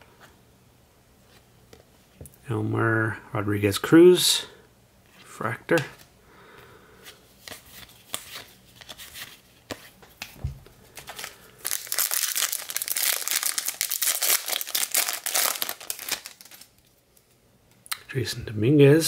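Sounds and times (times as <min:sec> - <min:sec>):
foil wrapper crinkling and tearing: 0:11.0 - 0:16.9.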